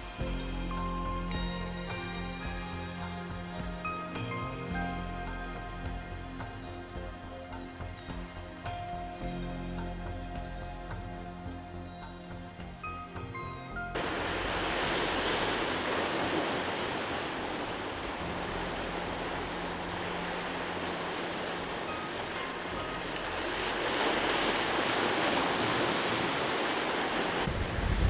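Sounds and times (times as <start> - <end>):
surf breaking over rocks: 14.0 - 28.0.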